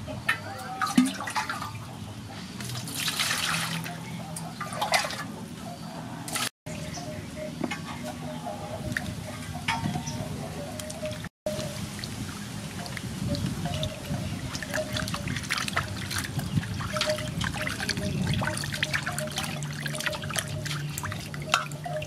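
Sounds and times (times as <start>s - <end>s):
water splashing in metal basin: 0.3s - 1.9s, 2.6s - 5.3s, 10.8s - 22.0s.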